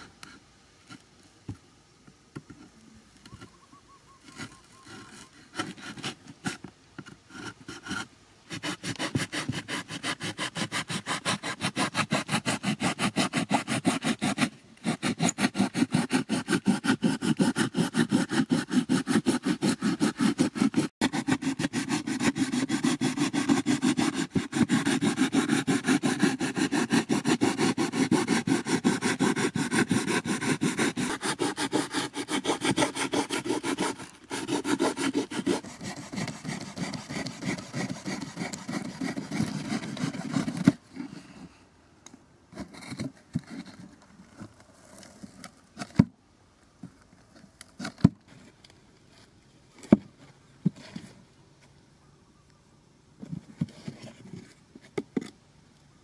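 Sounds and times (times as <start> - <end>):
knife sawing through cardboard: 4.3 - 41.3.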